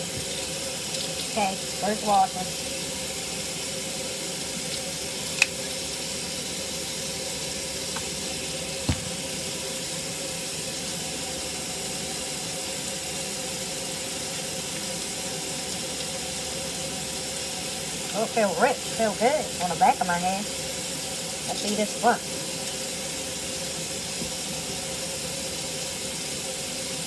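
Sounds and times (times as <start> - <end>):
faucet running into metal sink: 0.0 - 27.0
short knock: 8.9 - 9.2.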